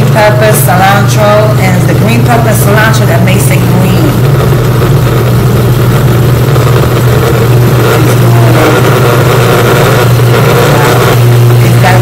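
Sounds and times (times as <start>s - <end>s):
blender motor labouring: 0.0s - 12.0s.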